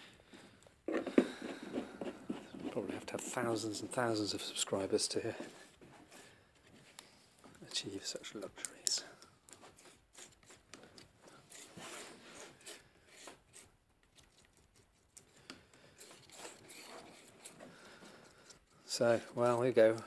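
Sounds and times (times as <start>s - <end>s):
palette knife scraping paint: 0.9s - 3.7s, 8.4s - 20.0s.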